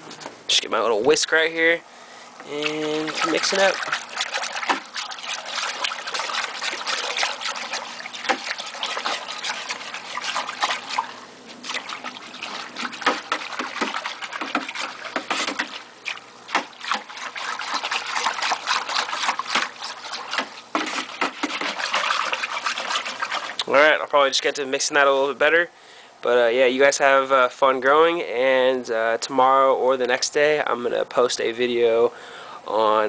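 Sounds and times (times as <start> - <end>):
air stone bubbling: 2.2 - 24.4
whisk sloshing water in bucket: 2.4 - 25.5, 28.9 - 32.0.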